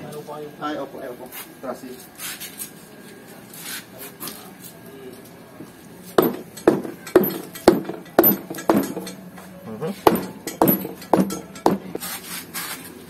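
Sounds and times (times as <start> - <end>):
hammer striking metal: 6.2 - 12.0
tools clinking on metal: 6.2 - 12.0.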